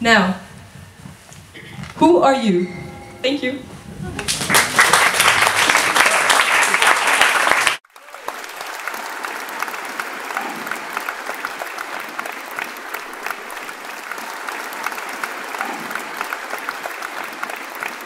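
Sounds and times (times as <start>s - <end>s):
audience applauding: 4.2s - 18.0s.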